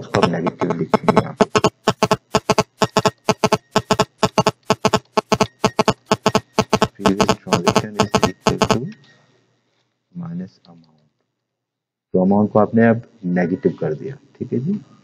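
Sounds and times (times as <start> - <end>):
computer keyboard typing: 0.2 - 8.8.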